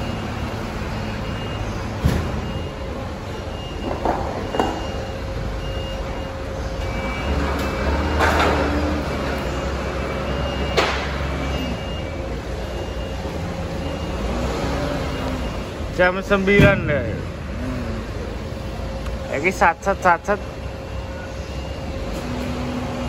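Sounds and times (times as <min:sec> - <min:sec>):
forklift engine running: 0:00.0 - 0:23.0
reversing beeper: 0:00.0 - 0:23.0.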